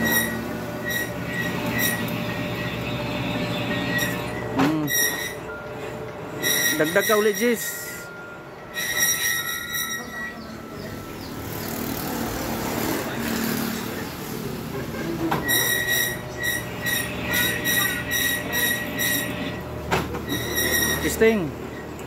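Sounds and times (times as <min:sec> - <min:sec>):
rough metal cutting noise: 0:00.0 - 0:05.6, 0:06.3 - 0:21.8
threading tool squealing on metal: 0:00.0 - 0:05.6, 0:06.3 - 0:08.1, 0:08.7 - 0:11.5, 0:15.3 - 0:19.6, 0:20.2 - 0:22.0
metal lathe running: 0:00.0 - 0:22.0.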